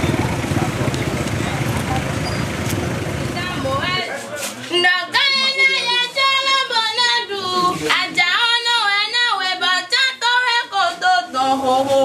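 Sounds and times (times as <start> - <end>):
woman singing in high voice: 4.7 - 12.0.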